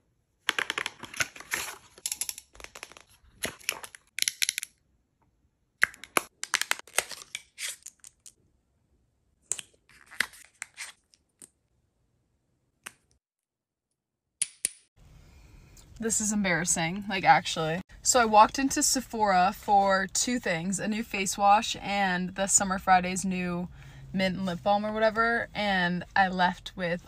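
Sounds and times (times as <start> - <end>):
packaging rustling and crinkling: 0.5 - 4.1.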